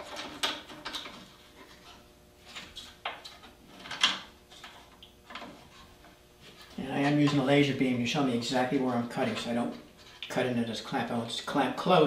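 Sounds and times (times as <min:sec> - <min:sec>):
small metal clicks and knocks: 0:00.0 - 0:01.9, 0:02.5 - 0:06.2.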